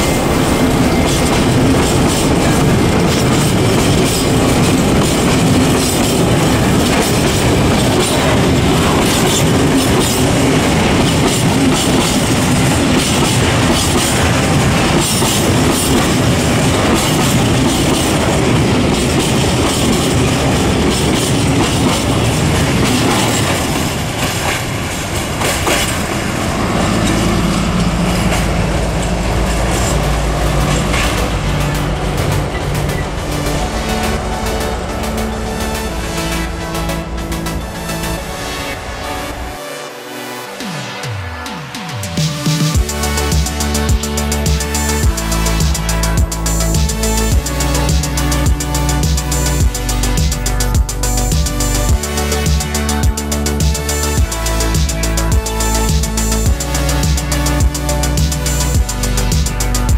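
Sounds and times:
clickety-clack over rail joints: 0:00.0 - 0:35.5
freight train wheels rumbling: 0:00.0 - 0:39.6, 0:41.4 - 0:59.9.

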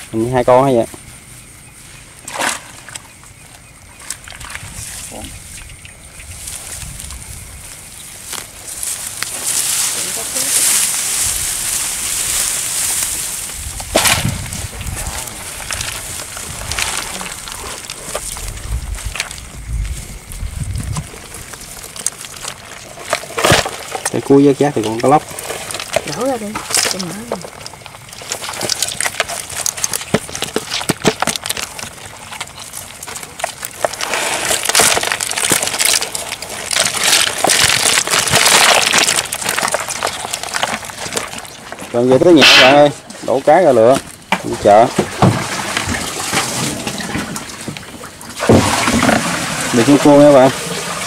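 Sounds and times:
water splashing and sloshing: 0:01.2 - 0:51.0
water and fish splashing out: 0:24.9 - 0:42.9, 0:44.6 - 0:51.0.

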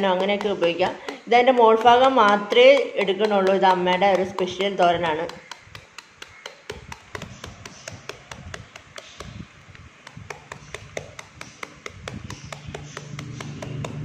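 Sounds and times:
knife chopping fruit: 0:00.0 - 0:14.0.

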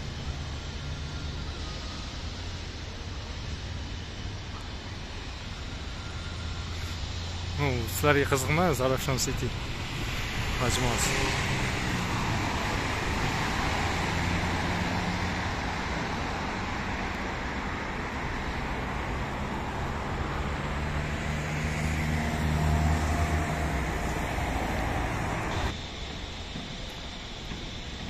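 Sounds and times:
cars passing with tyre noise: 0:00.0 - 0:28.0.

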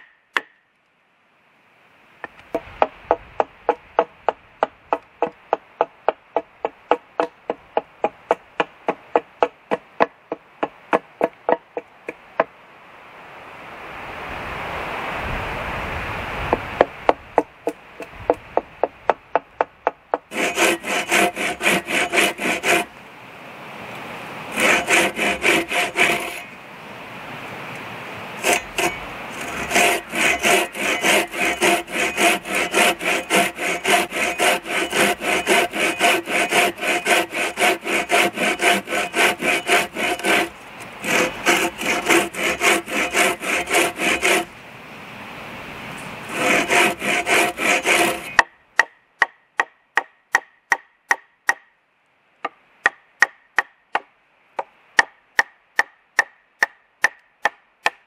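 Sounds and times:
axe striking wood: 0:00.0 - 0:00.6
saw cutting log: 0:20.2 - 0:23.0, 0:24.5 - 0:26.6, 0:28.4 - 0:44.6, 0:46.2 - 0:51.6.

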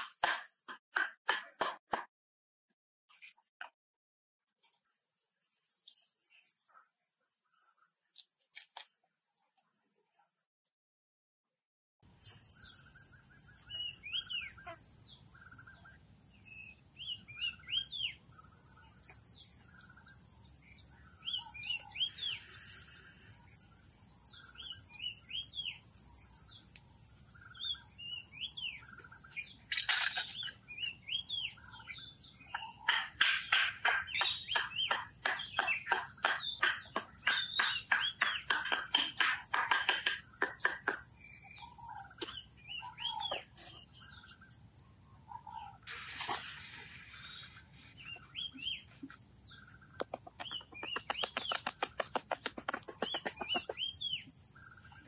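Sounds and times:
high-pitched insect drone: 0:12.2 - 0:16.0, 0:18.3 - 0:28.9
birds chirping and calling: 0:13.6 - 0:22.6, 0:27.3 - 0:55.0.

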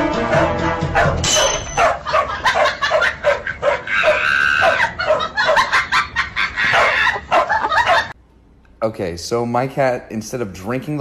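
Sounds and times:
dog barking in high yaps: 0:01.0 - 0:05.6, 0:06.7 - 0:08.1.

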